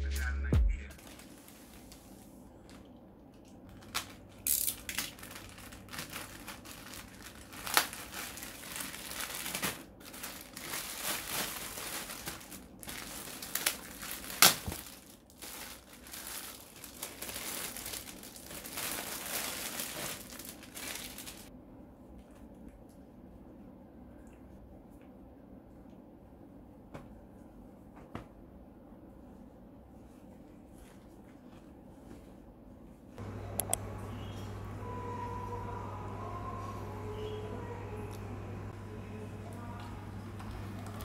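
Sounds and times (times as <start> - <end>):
plastic bag crinkling: 0.9 - 2.9, 3.7 - 21.5.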